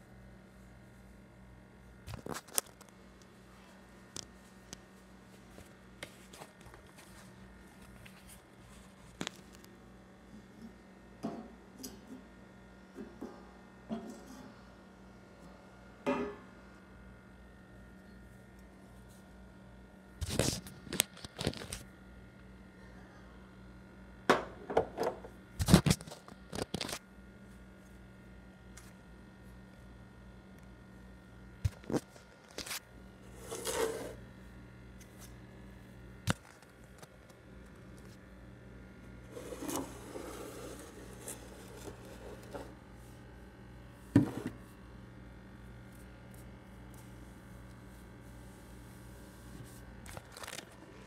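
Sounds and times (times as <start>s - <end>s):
objects rustling on countertop: 31.9s - 34.2s.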